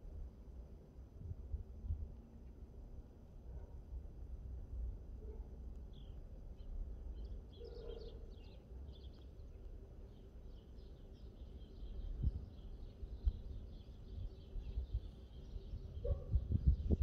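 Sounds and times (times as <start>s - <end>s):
small bird chirping: 5.9s - 17.0s
steady low rumble: 11.1s - 17.0s.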